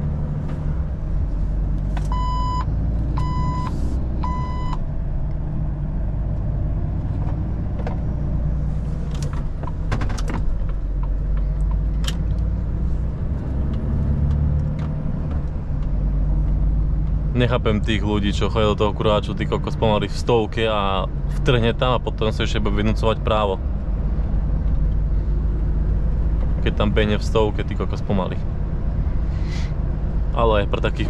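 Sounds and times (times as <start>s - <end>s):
short electronic beeps: 2.1s - 4.8s.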